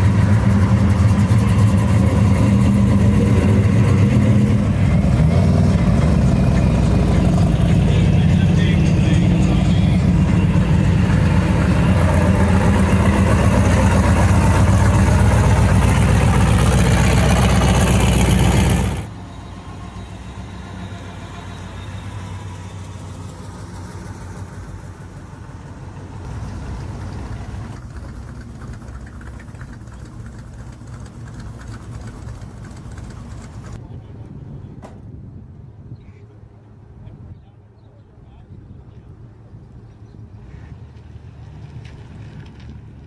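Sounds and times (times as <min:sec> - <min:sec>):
car engine idling: 0:00.0 - 0:19.1, 0:23.3 - 0:33.8.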